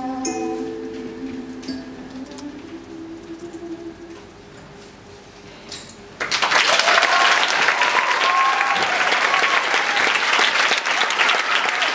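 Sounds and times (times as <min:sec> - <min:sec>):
audience applause: 0:06.2 - 0:11.9
people cheering: 0:06.3 - 0:11.9.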